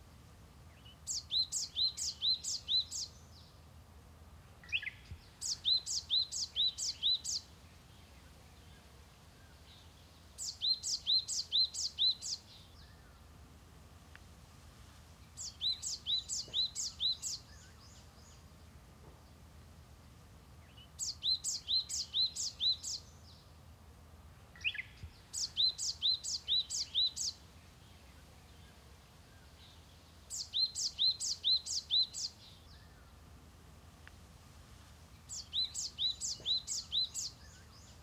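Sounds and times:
songbird singing falling notes: 0:15.4 - 0:18.4, 0:24.6 - 0:27.4, 0:29.6 - 0:33.0, 0:35.3 - 0:38.0.

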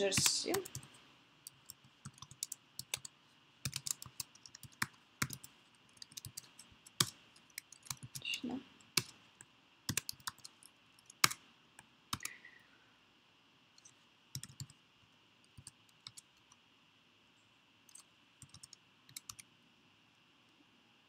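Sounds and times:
typing on computer keyboard: 0:00.2 - 0:08.3, 0:08.9 - 0:09.2, 0:09.9 - 0:11.4, 0:13.8 - 0:14.8, 0:15.5 - 0:16.6, 0:17.9 - 0:19.5.

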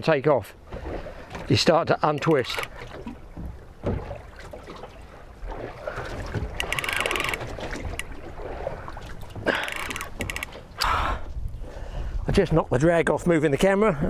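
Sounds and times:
fishing reel drag clicking: 0:02.2 - 0:02.7, 0:06.6 - 0:08.1, 0:09.6 - 0:10.9
wind buffeting: 0:05.0 - 0:14.0.

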